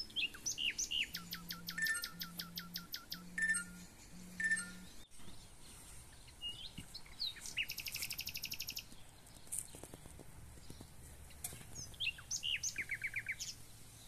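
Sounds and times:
fast high bird trill: 0.0 - 5.0
songbirds chirping: 0.0 - 14.0.

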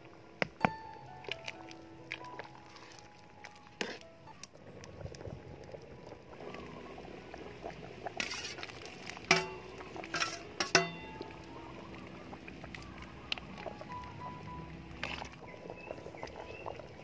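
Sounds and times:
porridge bubbling: 0.0 - 17.0
stirring scrapes and splashes: 1.2 - 4.1, 8.0 - 11.0, 15.0 - 15.4
metal ladle clinking on pot: 9.2 - 11.3.

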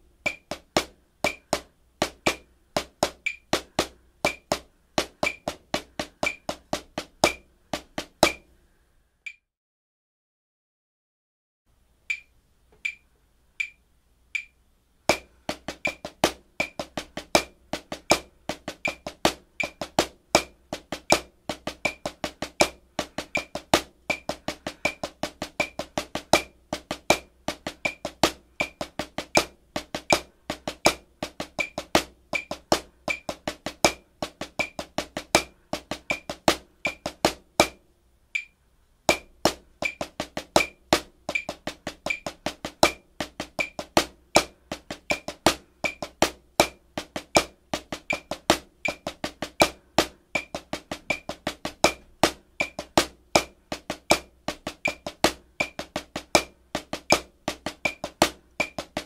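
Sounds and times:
metronome click: 3.2 - 3.5, 12.1 - 13.8, 14.4 - 14.6, 38.4 - 38.6
snare drum solo: 15.1 - 37.8, 39.1 - 59.0.

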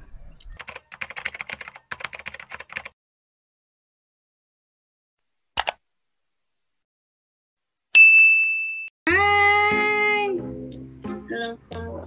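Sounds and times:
keyboard typing clicks: 0.6 - 3.0.

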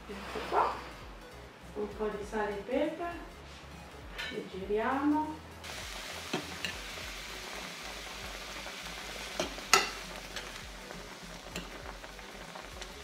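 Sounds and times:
spinach sizzling in a frying pan: 5.6 - 13.0.

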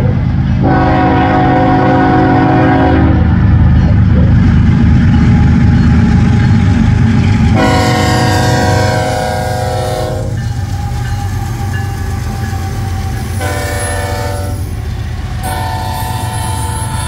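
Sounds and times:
locomotive engine rumble: 0.0 - 17.0
locomotive air horn chord: 0.6 - 3.3, 7.5 - 10.4, 11.8 - 14.7, 15.4 - 17.0.

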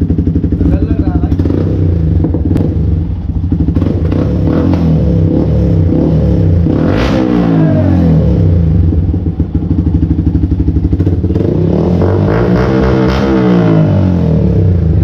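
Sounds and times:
motorcycle engine idling: 0.0 - 6.6, 7.5 - 12.0
motorcycle engine revving: 0.0 - 15.0.

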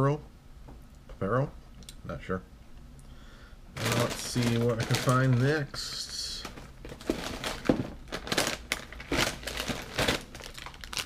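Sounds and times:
plastic wrappers crinkling: 3.7 - 11.0.

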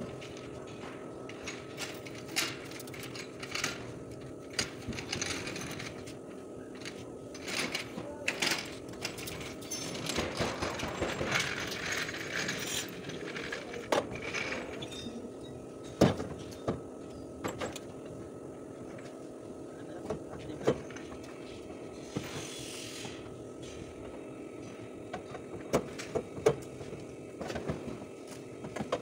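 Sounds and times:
metal clanks and rattles: 7.4 - 15.2
short hiss: 22.3 - 23.2.

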